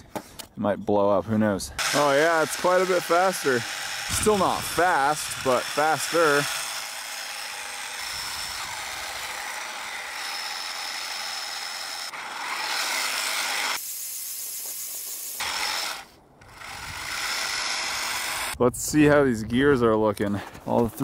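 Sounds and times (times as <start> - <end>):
toy tank gear drive and tracks: 1.8 - 18.6.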